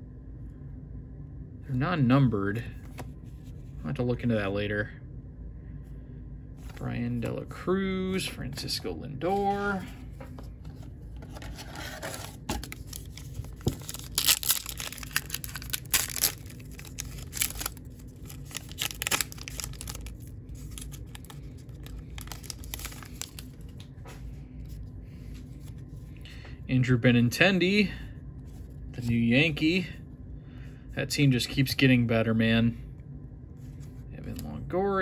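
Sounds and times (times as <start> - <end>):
wrapper being torn open: 12.6 - 23.7.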